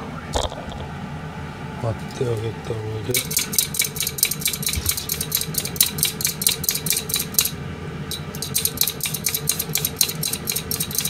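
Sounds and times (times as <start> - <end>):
peeler rasping on carrot: 3.1 - 7.5, 8.4 - 11.0.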